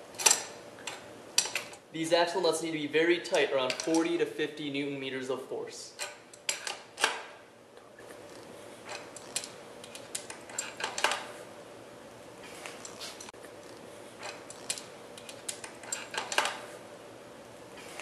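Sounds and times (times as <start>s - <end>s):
faint steady hum: 0.0s - 18.0s
wrench clicking on metal nuts: 0.2s - 1.8s, 3.6s - 4.2s, 8.9s - 11.3s, 14.2s - 16.6s.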